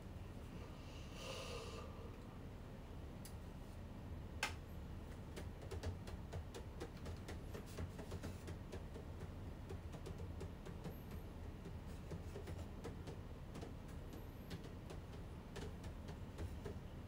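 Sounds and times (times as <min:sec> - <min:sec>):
small clicks and taps: 0:04.4 - 0:16.9.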